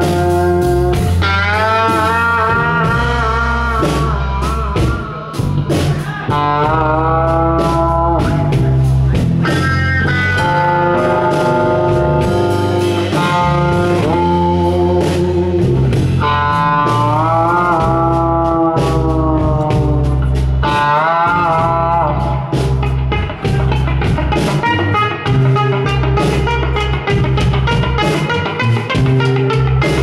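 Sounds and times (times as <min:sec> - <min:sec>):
drums: 0:00.0 - 0:30.0
electric bass: 0:00.0 - 0:30.0
electric guitar blues solo: 0:00.0 - 0:30.0.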